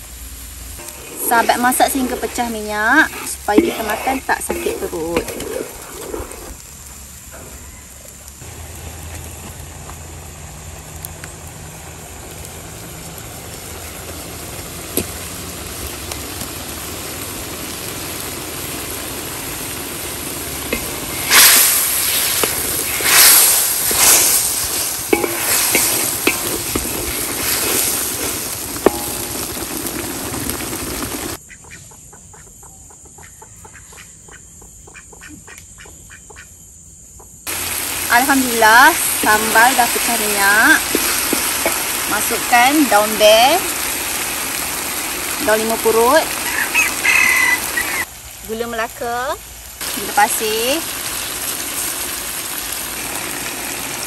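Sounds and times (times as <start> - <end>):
paste sizzling in hot oil: 0.0 - 7.2, 8.3 - 31.4, 37.5 - 54.0
outdoor background: 0.0 - 54.0
wooden spatula scraping wok: 0.7 - 6.8, 20.3 - 31.4, 38.2 - 44.2.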